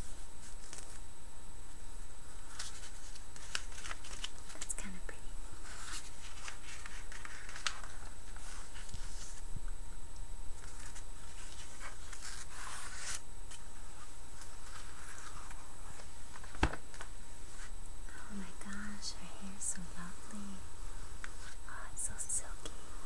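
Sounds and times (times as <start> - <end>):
pages being turned: 0.1 - 1.0, 2.3 - 4.7, 5.6 - 9.4, 10.6 - 17.7.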